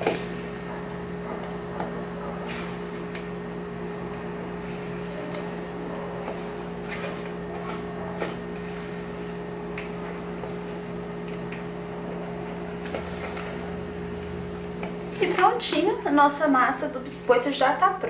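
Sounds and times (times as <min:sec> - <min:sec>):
steady low hum: 0:00.0 - 0:18.0
spatula scraping a bowl: 0:04.7 - 0:09.3.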